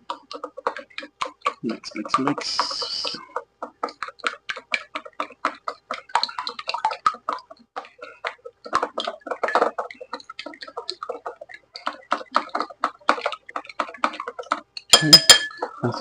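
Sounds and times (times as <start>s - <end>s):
chopsticks whisking egg in bowl: 0.0s - 16.0s.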